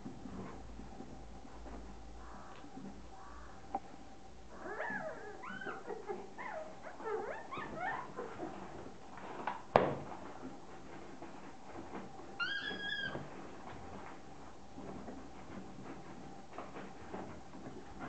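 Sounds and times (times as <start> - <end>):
puppies whining and yipping: 4.5 - 8.9, 12.4 - 13.4.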